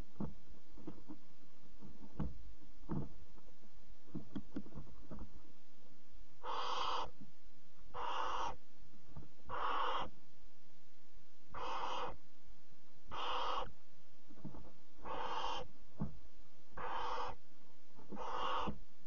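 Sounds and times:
scratches and knocks of movement: 0:00.0 - 0:05.6, 0:14.2 - 0:14.9
owlets hissing begging calls: 0:06.4 - 0:07.1, 0:07.9 - 0:08.6, 0:09.5 - 0:10.2, 0:11.5 - 0:12.2, 0:13.1 - 0:13.7, 0:15.0 - 0:15.7, 0:16.8 - 0:17.4, 0:18.1 - 0:18.8.

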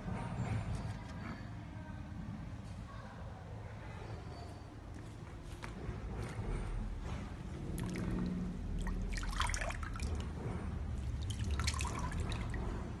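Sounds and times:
water trickling and splashing: 0:07.8 - 0:13.0.

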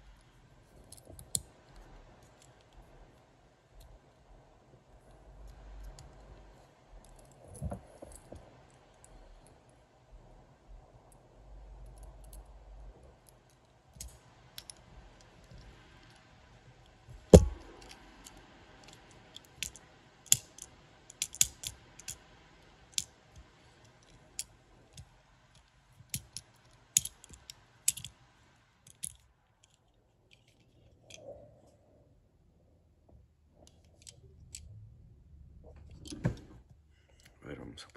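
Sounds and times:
toy truck parts clicking: 0:00.8 - 0:02.8, 0:13.2 - 0:16.3, 0:17.6 - 0:28.2, 0:28.8 - 0:31.2, 0:33.6 - 0:34.7.

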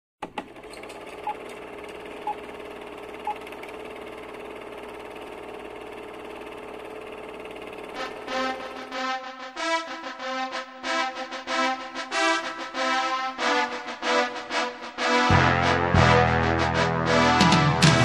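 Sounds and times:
film projector whirring and rattling: 0:00.2 - 0:08.9
music: 0:07.8 - 0:18.0.

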